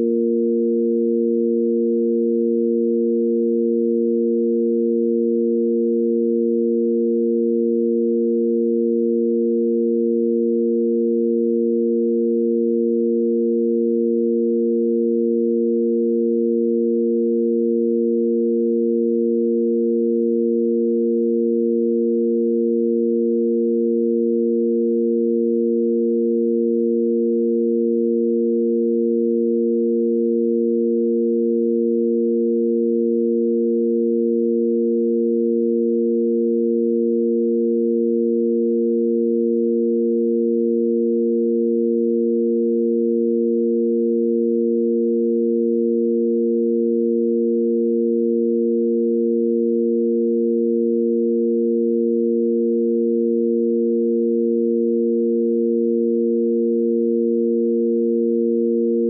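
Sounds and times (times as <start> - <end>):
sine wave drone: 0.0 - 59.0.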